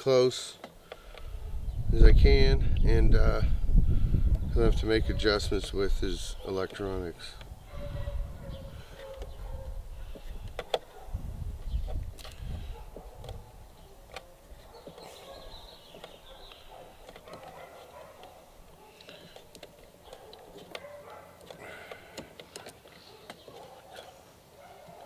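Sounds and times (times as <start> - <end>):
small plastic clicks: 10.1 - 10.9, 11.6 - 12.5, 15.8 - 24.2.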